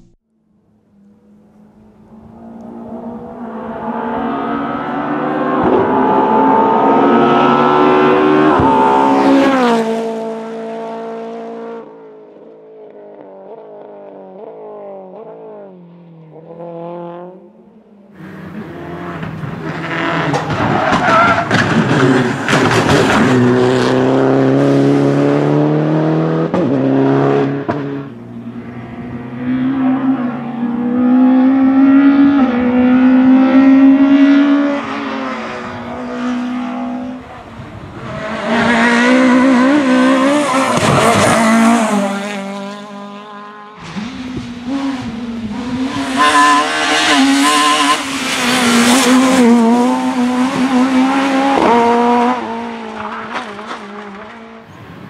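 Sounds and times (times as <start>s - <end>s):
rally car engines revving: 1.0s - 55.0s
tyre squeal: 45.9s - 48.5s.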